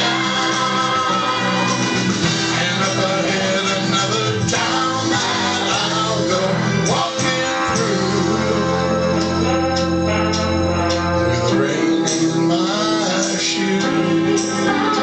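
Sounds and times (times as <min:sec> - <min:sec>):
country-pop song instrumental: 0:00.0 - 0:15.0.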